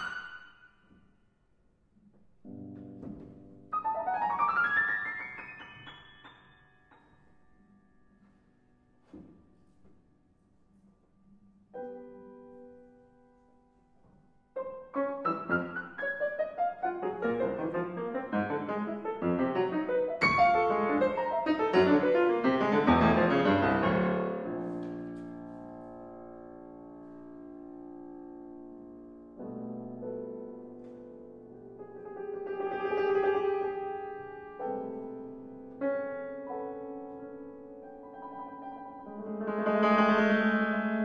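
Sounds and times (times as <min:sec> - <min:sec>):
solo piano playing: 0:02.4 - 0:08.0, 0:14.4 - 0:41.0.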